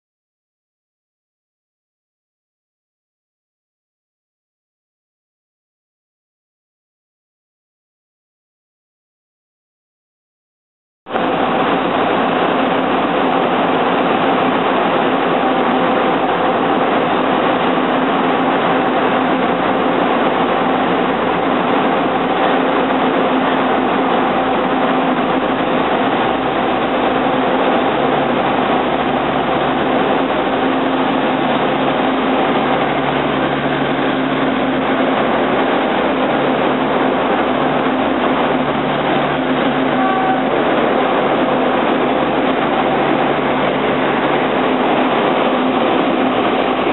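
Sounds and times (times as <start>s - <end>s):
diesel railcar engine drone: 11.1s - 46.9s.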